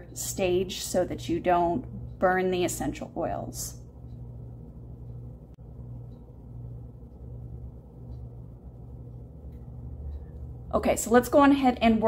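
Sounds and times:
hum: 0:00.0 - 0:12.0
low steady rumble: 0:00.0 - 0:12.0.

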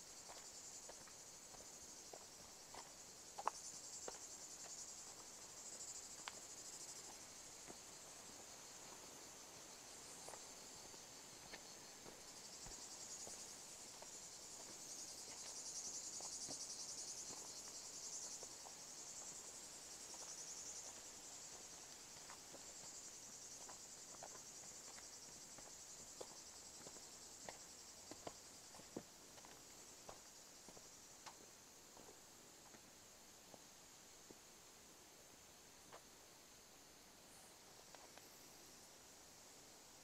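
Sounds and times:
high insect song: 0:00.0 - 0:40.0
footsteps on dirt path: 0:00.2 - 0:09.1, 0:10.0 - 0:19.4, 0:20.0 - 0:32.8.

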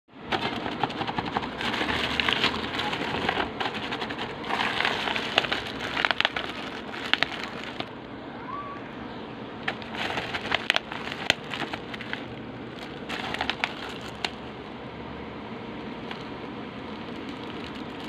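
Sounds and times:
plastic pouch crinkling: 0:00.3 - 0:07.9, 0:09.6 - 0:14.5, 0:16.0 - 0:18.0.

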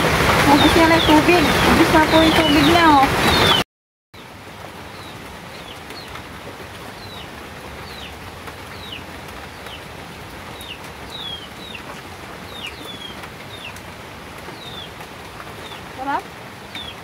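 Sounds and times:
bird chirping: 0:00.5 - 0:03.6, 0:04.9 - 0:06.2, 0:07.0 - 0:09.9, 0:10.5 - 0:13.8, 0:14.5 - 0:17.0.

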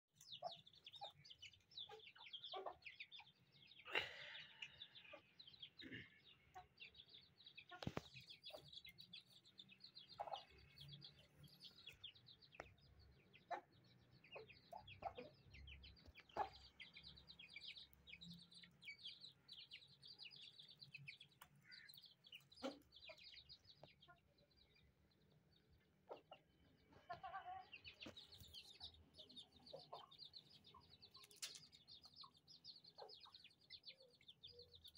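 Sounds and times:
chicks peeping: 0:00.2 - 0:34.9
hens clucking: 0:07.7 - 0:18.0, 0:18.7 - 0:23.9, 0:25.9 - 0:33.5.

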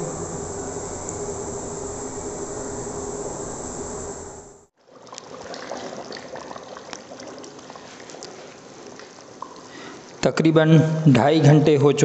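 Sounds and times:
liquid sloshing and bubbling: 0:04.8 - 0:10.2.

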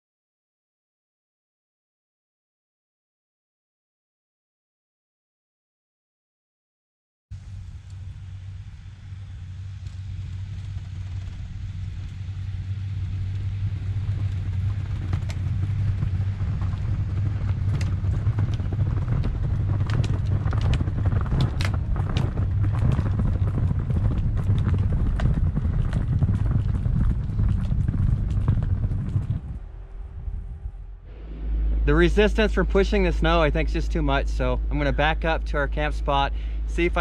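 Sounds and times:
van engine labouring: 0:29.0 - 0:37.0.

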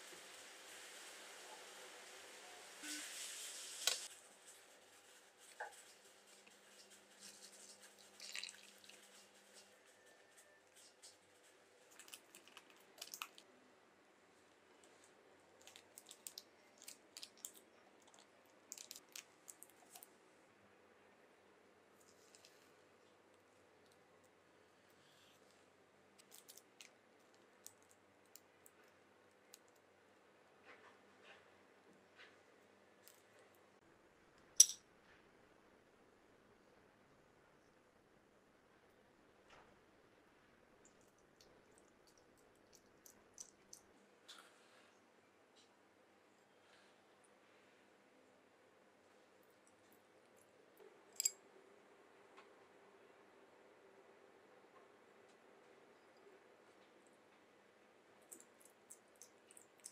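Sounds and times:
water trickling into metal tray: 0:07.9 - 0:09.1.

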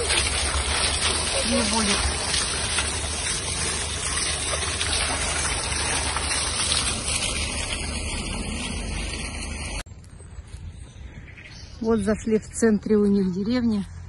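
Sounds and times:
fountain jets splashing: 0:00.0 - 0:09.8.

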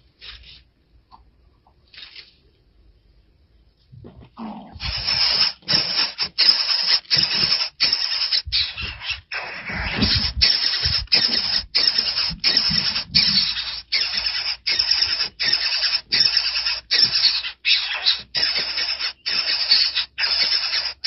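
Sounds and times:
nestlings begging calls: 0:04.7 - 0:21.0.

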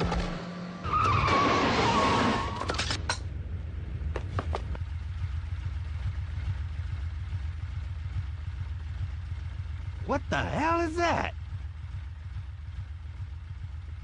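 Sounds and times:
motorcycle engine idling: 0:03.7 - 0:14.0.

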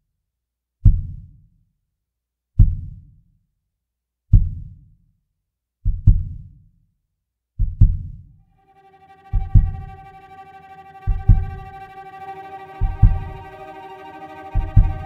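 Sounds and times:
held cello notes: 0:08.6 - 0:15.0.

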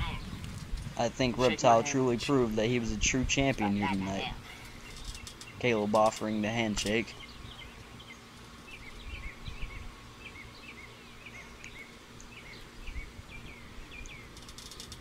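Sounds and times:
low steady rumble: 0:00.0 - 0:15.0
small bird chirping: 0:07.1 - 0:15.0.

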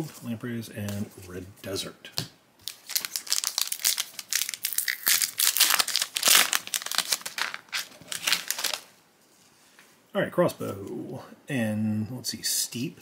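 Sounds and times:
foil wrapper crinkling: 0:02.6 - 0:08.9.

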